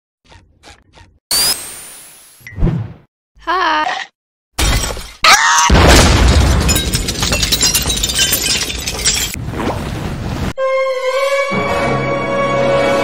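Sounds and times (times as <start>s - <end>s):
glass shattering crash: 4.6s - 9.4s.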